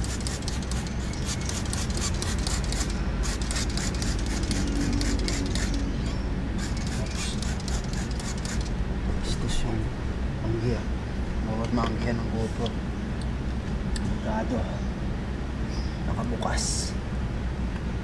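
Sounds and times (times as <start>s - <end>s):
spray bottle squirting water: 0.0s - 5.8s, 6.6s - 8.7s
steady low hum: 0.0s - 18.0s.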